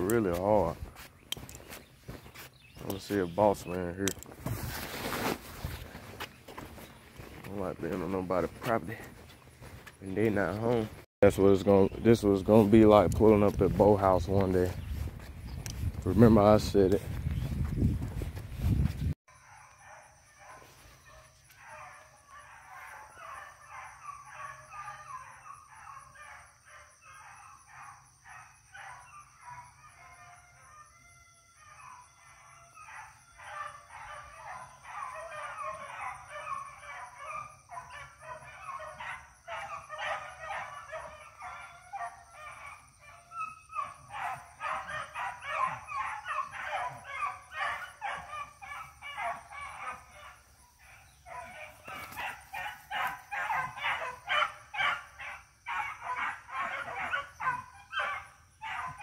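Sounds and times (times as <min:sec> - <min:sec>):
beagles baying: 0:00.0 - 0:04.6, 0:19.4 - 0:30.7, 0:31.6 - 0:59.0.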